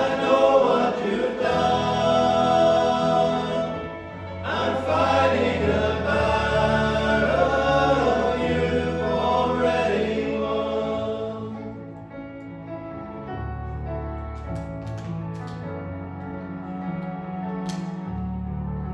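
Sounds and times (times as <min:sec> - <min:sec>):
men's choir singing: 0:00.0 - 0:11.9
keyboard piano accompaniment: 0:00.0 - 0:18.9.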